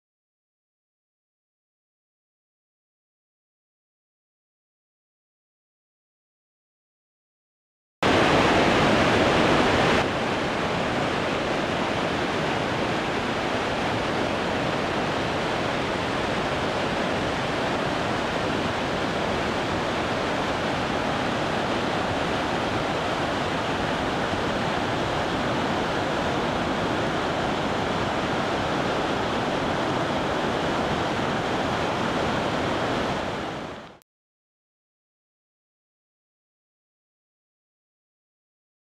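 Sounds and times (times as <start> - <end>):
waterfall rushing over rocks: 8.0 - 34.0.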